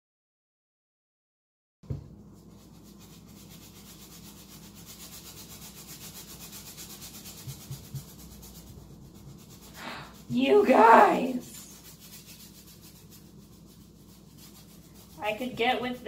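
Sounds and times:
knock: 0:01.8 - 0:02.1
paintbrush scrubbing on canvas: 0:02.1 - 0:16.0.

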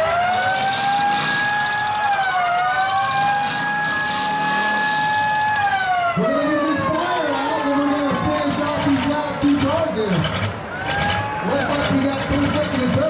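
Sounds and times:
siren wailing: 0:00.0 - 0:09.2.

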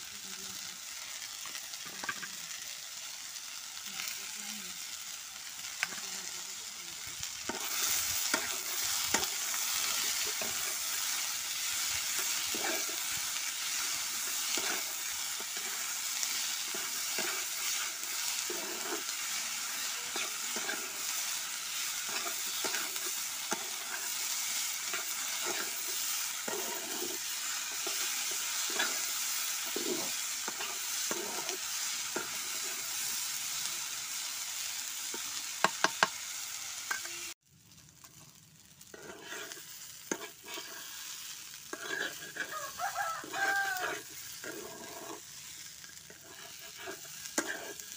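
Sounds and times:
vegetables sizzling in oil: 0:00.0 - 0:47.9
wooden spatula scraping pan: 0:07.5 - 0:32.9, 0:38.9 - 0:47.9.

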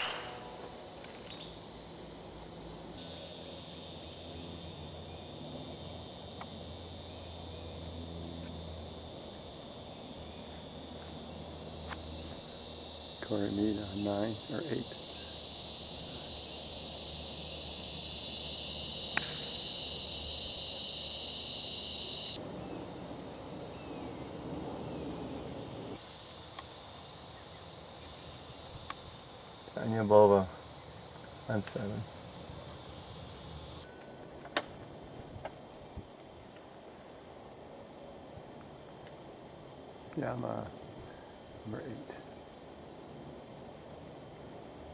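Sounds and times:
sharp click: 0:00.0 - 0:00.4
golf club striking ball: 0:00.0 - 0:00.6, 0:19.1 - 0:19.5
insect drone: 0:00.0 - 0:44.9.

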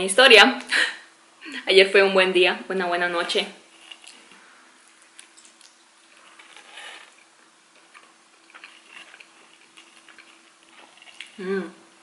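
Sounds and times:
chewing food: 0:03.8 - 0:11.4.

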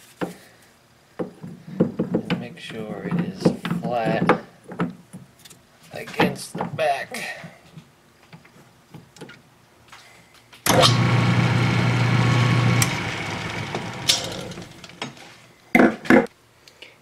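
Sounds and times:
lathe motor humming: 0:10.7 - 0:15.3.

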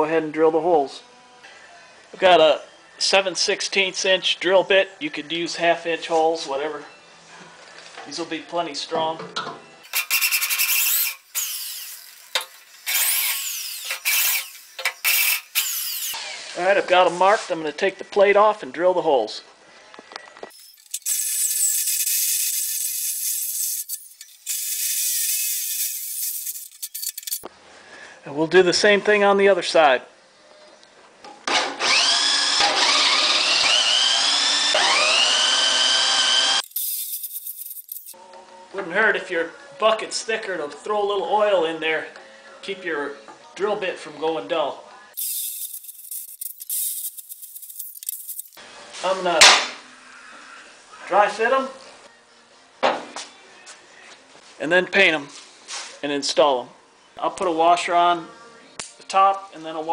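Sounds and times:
electric drill grinding on steel: 0:09.9 - 0:16.6, 0:20.5 - 0:27.5, 0:31.8 - 0:38.2, 0:45.2 - 0:48.6.

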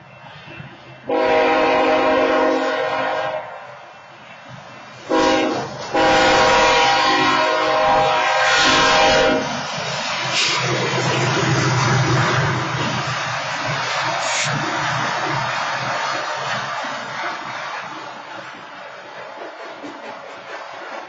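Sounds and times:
train rumble: 0:00.0 - 0:21.0
locomotive air horn blasts: 0:01.0 - 0:03.6, 0:05.1 - 0:09.4.

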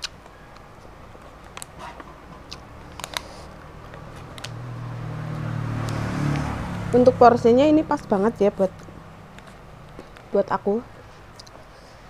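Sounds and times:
chewing: 0:01.2 - 0:04.6.

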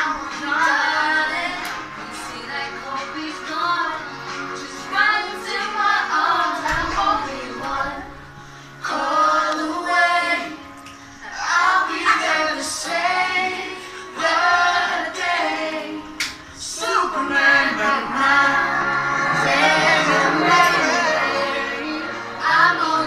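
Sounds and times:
backing music: 0:00.0 - 0:23.0
women and children singing: 0:04.6 - 0:08.2, 0:11.3 - 0:23.0.

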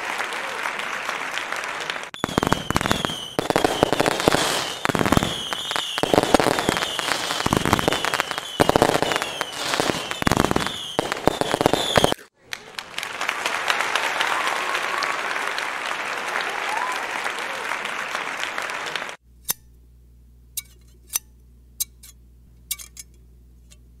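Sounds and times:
applause: 0:00.0 - 0:04.6, 0:11.6 - 0:19.2
crackling firework bangs: 0:02.2 - 0:12.2
firework whistles: 0:02.2 - 0:12.3.

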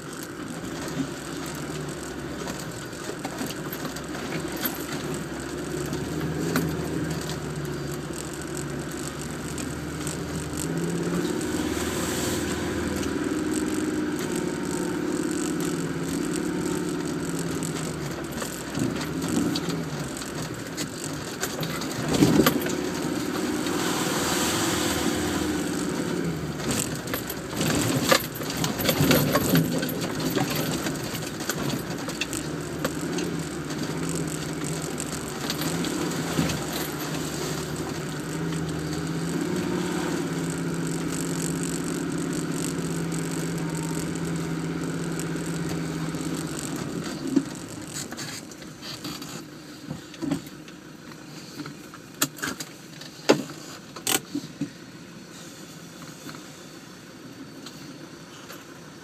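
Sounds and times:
off-road vehicle engine: 0:00.0 - 0:59.0
body knocks and rattles: 0:13.0 - 0:23.7, 0:25.6 - 0:50.4.

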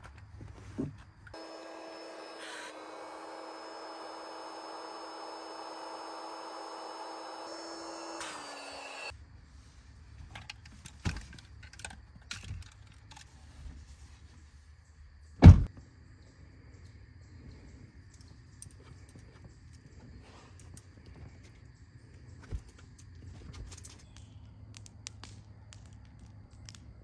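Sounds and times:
electric air pump humming: 0:01.4 - 0:09.1
loud thump: 0:15.4 - 0:15.7.

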